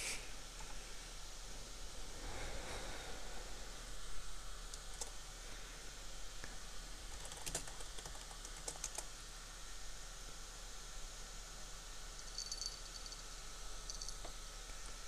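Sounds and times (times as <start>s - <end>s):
computer keyboard keys clicking: 4.7s - 5.2s, 7.1s - 9.1s.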